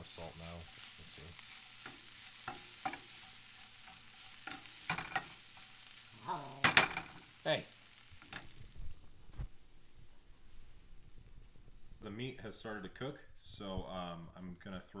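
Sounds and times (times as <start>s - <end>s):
vegetables sizzling in a pan: 0.0s - 12.1s
spatula scraping a pan: 0.1s - 6.1s.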